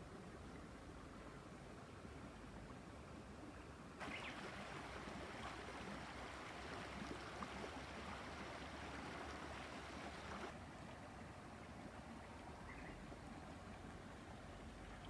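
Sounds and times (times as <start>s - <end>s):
shallow creek flowing: 0.0s - 15.0s.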